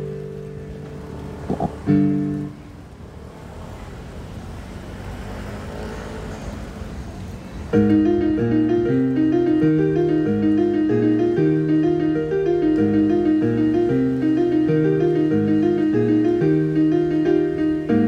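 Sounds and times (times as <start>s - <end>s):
electronic keyboard piano chords: 0.0s - 2.8s, 7.7s - 18.0s.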